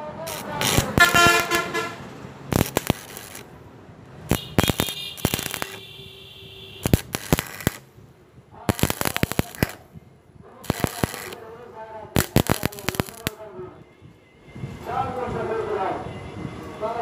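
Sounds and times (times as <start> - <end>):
welding arc crackling: 0.1 - 6.0, 6.7 - 8.0, 8.7 - 9.9, 10.6 - 11.4, 12.2 - 13.4.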